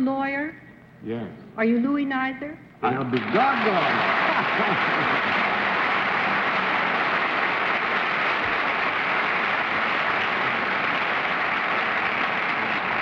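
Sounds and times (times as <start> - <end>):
studio audience applauding: 2.9 - 13.0.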